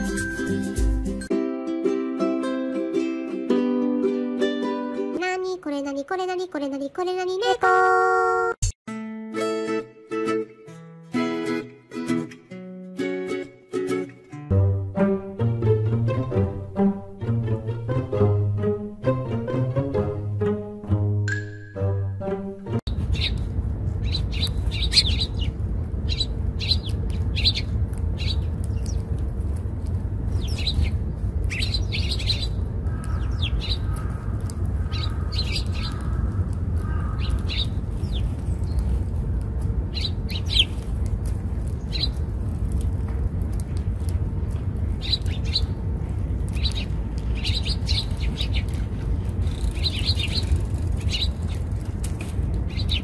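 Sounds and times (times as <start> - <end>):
steady low rumble: 22.6 - 53.0
sparrows chirping: 22.9 - 29.2, 30.2 - 39.2, 39.9 - 42.3, 44.9 - 51.9, 52.7 - 53.0.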